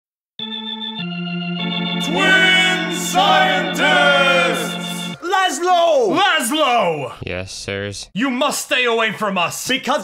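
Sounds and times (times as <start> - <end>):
organ bass note: 0.4 - 5.2
organ chords: 0.4 - 5.3.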